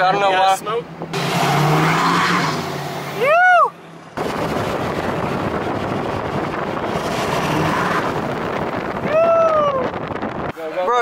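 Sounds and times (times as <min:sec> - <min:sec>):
road noise: 0:00.0 - 0:11.0
wind buffeting microphone: 0:04.2 - 0:11.0.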